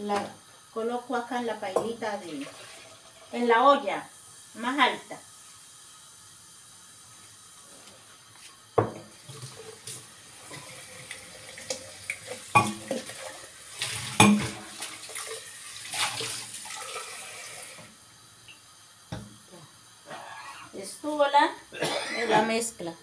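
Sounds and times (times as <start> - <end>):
cookware knocking: 12.6 - 13.0, 14.2 - 14.6.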